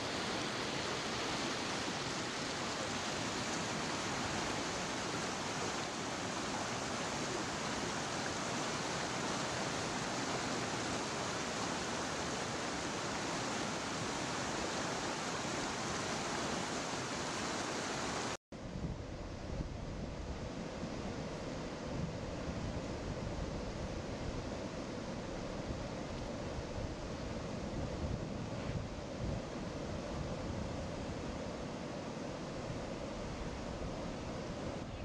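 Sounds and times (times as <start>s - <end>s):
water rushing over a weir: 0.0s - 18.4s.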